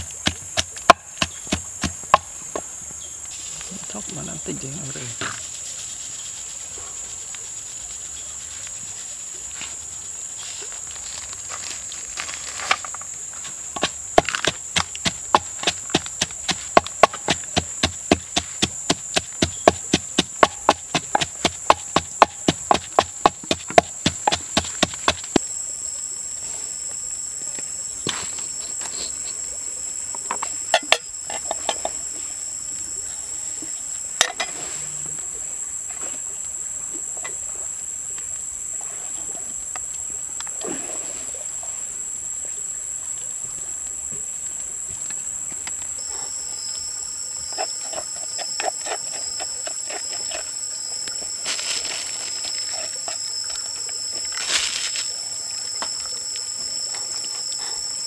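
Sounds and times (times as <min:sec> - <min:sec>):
knocks and clicks handling limes: 0:00.0 - 0:02.7, 0:13.8 - 0:25.4, 0:30.2 - 0:32.0
high-pitched insect drone: 0:12.8 - 0:36.1, 0:44.8 - 0:58.0.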